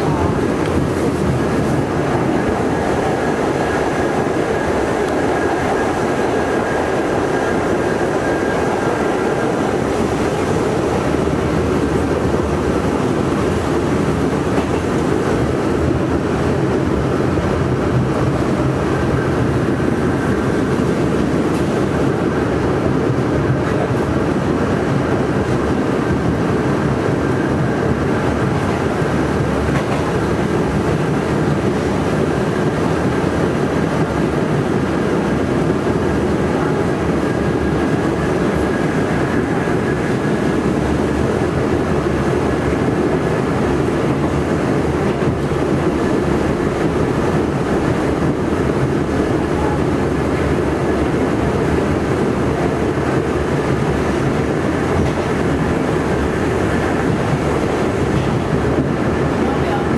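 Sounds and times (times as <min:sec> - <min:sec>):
wheels rumbling on rail: 0:00.0 - 0:59.9.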